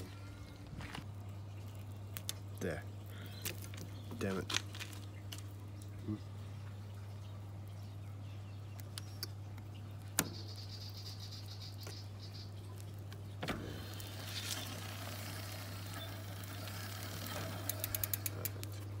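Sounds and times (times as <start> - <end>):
bike chain ticking: 14.0 - 18.9
sharp metallic clicks: 17.6 - 18.8.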